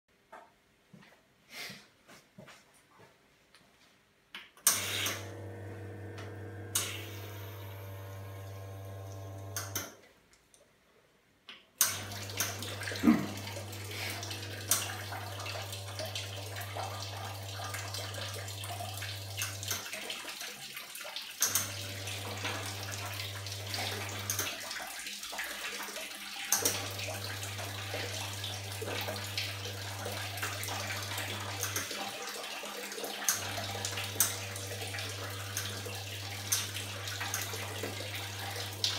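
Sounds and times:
espresso machine pump hum: 4.8s - 9.8s, 12.0s - 19.6s, 21.6s - 24.3s, 33.4s - 38.9s
clicks: 6.1s - 7.2s
water splashing onto drip tray: 11.9s - 38.9s.

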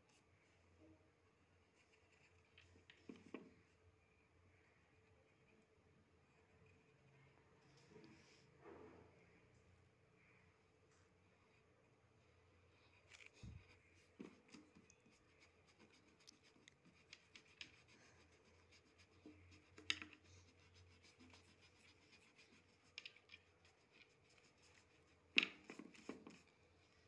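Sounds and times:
pencil scratching on paper: 13.4s - 26.5s.

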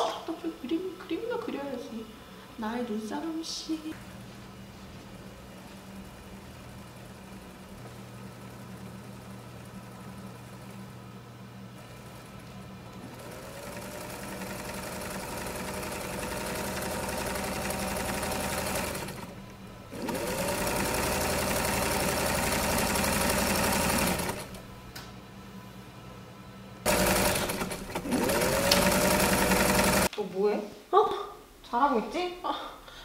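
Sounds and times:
sewing machine running: 11.8s - 24.7s, 26.8s - 30.1s.

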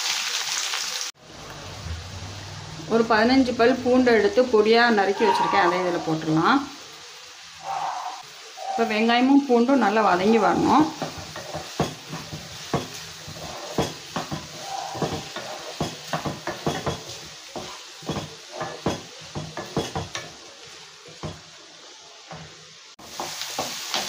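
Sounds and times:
onions sizzling: 0.0s - 24.0s
wooden spatula scraping a pan: 10.3s - 21.4s.

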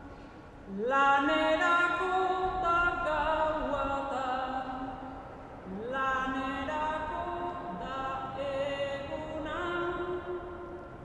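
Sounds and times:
person singing unaccompanied: 0.7s - 11.0s.

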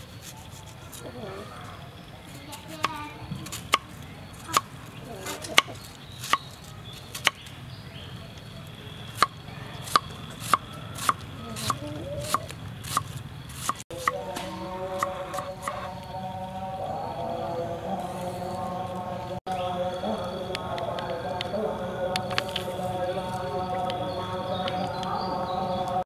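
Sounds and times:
knife chopping on wooden board: 9.2s - 15.8s.

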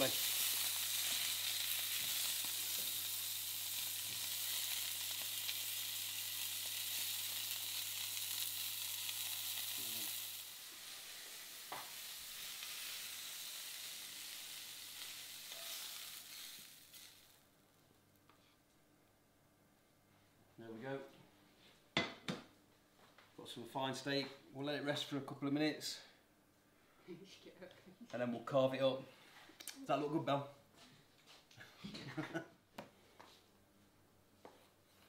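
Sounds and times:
meat sizzling in a frying pan: 0.0s - 17.5s.

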